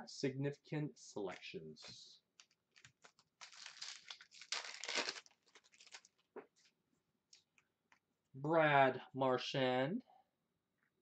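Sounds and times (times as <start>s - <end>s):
foil wrappers crinkling: 2.4s - 6.2s.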